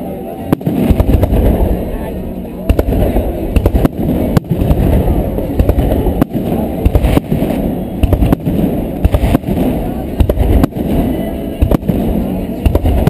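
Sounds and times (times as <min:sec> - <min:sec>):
low rumble of fireworks: 0:00.0 - 0:13.0
firework shells bursting: 0:02.7 - 0:13.0.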